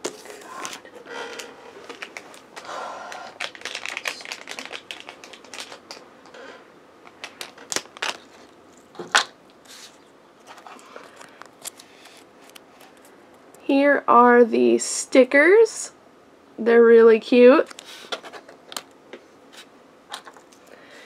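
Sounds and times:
plastic packaging rustling: 0:00.0 - 0:13.1.

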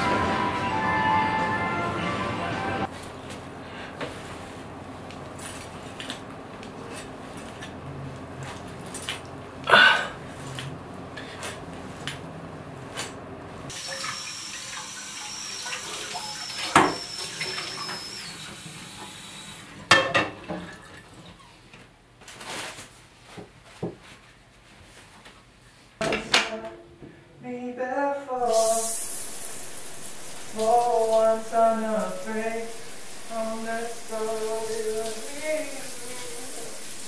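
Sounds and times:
thin high whine: 0:00.0 - 0:02.9, 0:13.8 - 0:19.7, 0:28.4 - 0:37.0
tap water running into sink: 0:13.7 - 0:18.6, 0:28.5 - 0:37.0
dishes clattering: 0:19.9 - 0:20.8.

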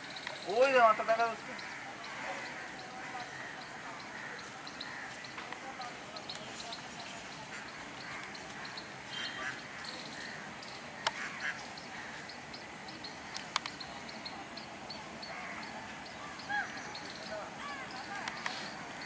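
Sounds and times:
birds calling: 0:00.0 - 0:19.0
steady high hiss: 0:00.0 - 0:19.0
crows cawing: 0:00.6 - 0:05.5, 0:07.5 - 0:12.4, 0:15.2 - 0:19.0
sharp clicks: 0:13.3 - 0:13.9, 0:18.2 - 0:18.6.

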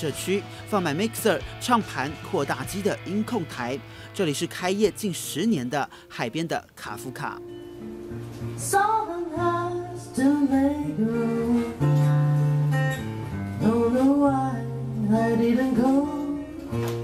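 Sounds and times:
strummed acoustic guitar: 0:00.0 - 0:04.6, 0:07.4 - 0:17.0
man singing: 0:13.6 - 0:16.8.

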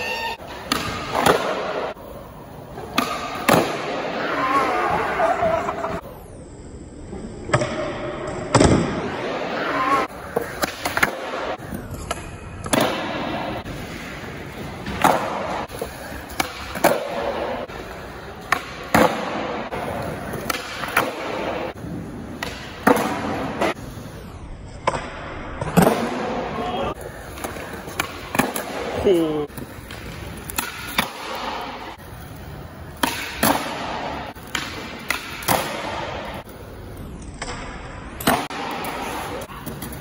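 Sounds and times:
skateboard wheels rolling on concrete: 0:00.0 - 0:07.4, 0:09.0 - 0:24.8, 0:25.4 - 0:40.0
skateboard tails popping and landing: 0:10.0 - 0:23.9.

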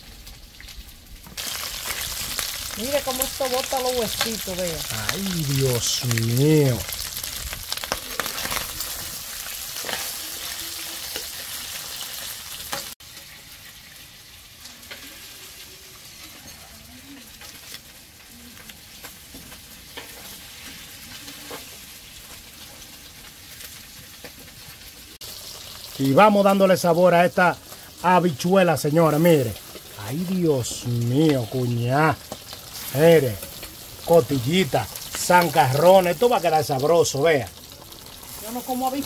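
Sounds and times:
meat sizzling in a pot: 0:00.0 - 0:39.0.

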